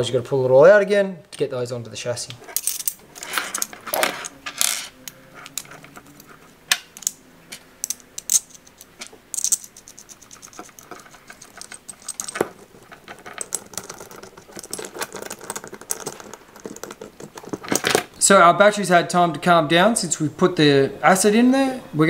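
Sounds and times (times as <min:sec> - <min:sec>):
metal clicks and clinks: 0:02.6 - 0:07.2, 0:07.8 - 0:18.1.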